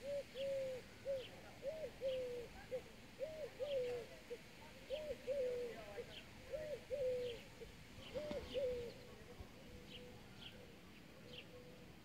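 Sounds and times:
dove cooing: 0:00.0 - 0:09.1.

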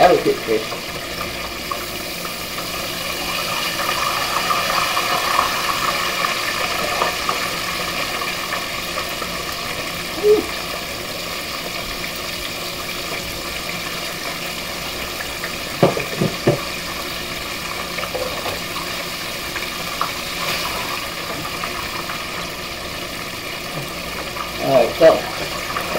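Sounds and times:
fish deep-frying in oil: 0:00.0 - 0:25.9.

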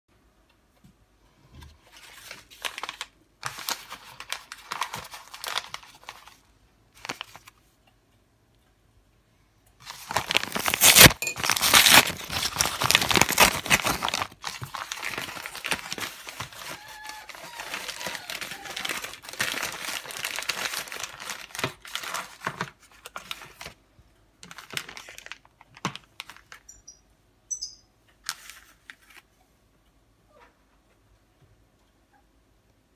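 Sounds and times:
paper mailer tearing and crinkling: 0:01.9 - 0:06.4, 0:09.8 - 0:23.8.

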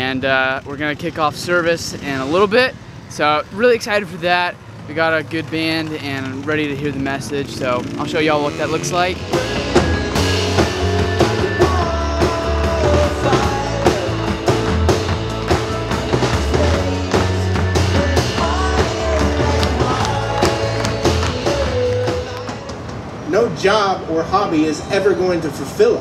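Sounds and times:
drum kit steady beat: 0:08.6 - 0:23.2
live rock band playing: 0:08.8 - 0:23.3
person singing melody: 0:09.1 - 0:14.8, 0:15.4 - 0:22.9.

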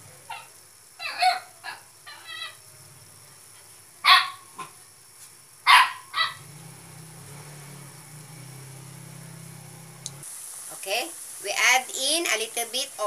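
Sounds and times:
dog barking: 0:00.3 - 0:02.6, 0:04.0 - 0:04.8, 0:05.6 - 0:06.4
low steady hum: 0:06.4 - 0:13.0.

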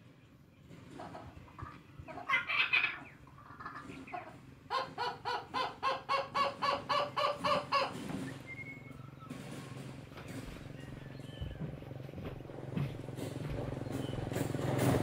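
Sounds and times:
animal calls: 0:00.9 - 0:09.8.

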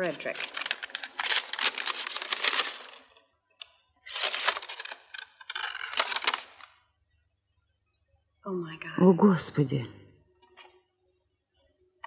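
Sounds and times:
paper rustling and crackling: 0:00.0 - 0:03.2, 0:04.0 - 0:06.8.

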